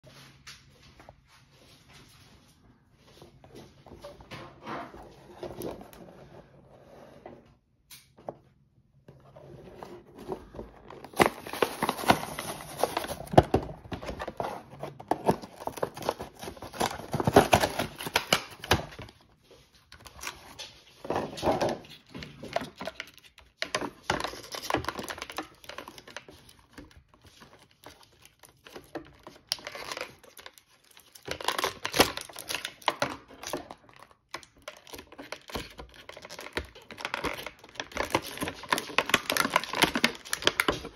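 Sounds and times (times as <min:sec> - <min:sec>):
plastic packaging crinkling and tearing: 0:09.6 - 0:40.9.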